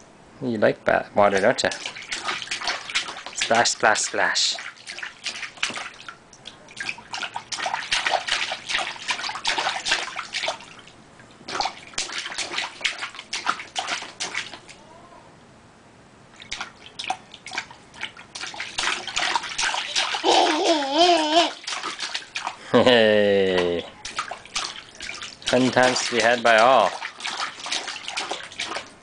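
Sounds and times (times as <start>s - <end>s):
hands splashing water: 1.3s - 10.9s, 11.5s - 14.8s, 16.4s - 22.6s, 23.4s - 29.0s
baby vocalizing: 20.0s - 21.6s.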